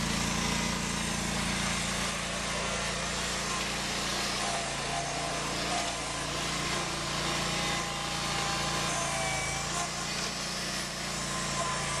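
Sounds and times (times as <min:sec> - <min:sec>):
garden tractor engine running: 0:00.0 - 0:12.0.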